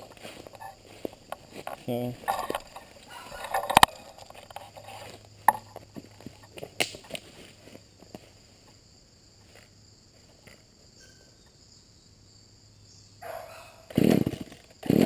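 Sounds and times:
branches rustling and snapping: 0:00.0 - 0:08.8
insect drone: 0:00.0 - 0:15.0.

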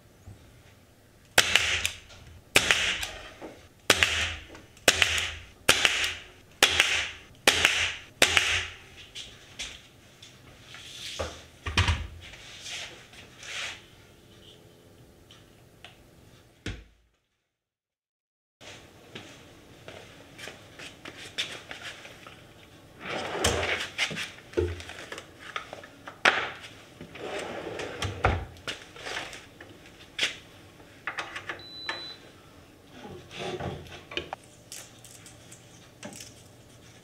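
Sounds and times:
nail gun firing: 0:01.4 - 0:03.2, 0:03.9 - 0:08.8.

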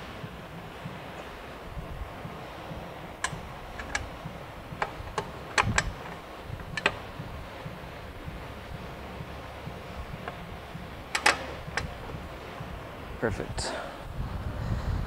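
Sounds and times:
metallic clicks of hand tools: 0:03.2 - 0:04.2.

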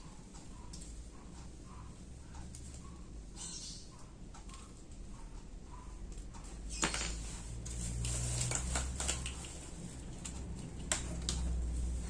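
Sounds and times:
fan motor humming: 0:00.0 - 0:12.0.

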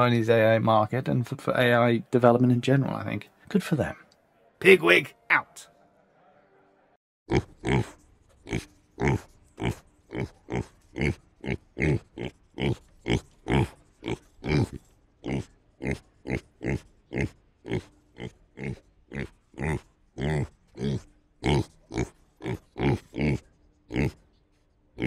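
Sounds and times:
pig grunting: 0:07.3 - 0:24.2.

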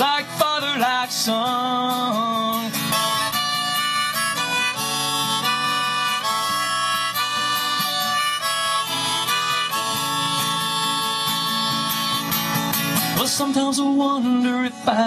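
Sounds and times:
strummed acoustic guitar: 0:00.0 - 0:15.0
harmonica solo: 0:02.7 - 0:13.2.

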